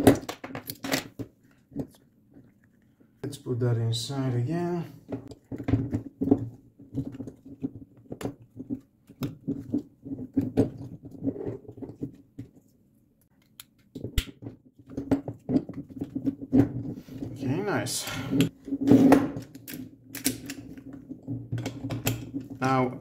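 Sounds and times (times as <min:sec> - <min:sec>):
plastic scraping on metal lock: 0:19.0 - 0:20.9
small plastic and metal clicks: 0:19.6 - 0:20.8.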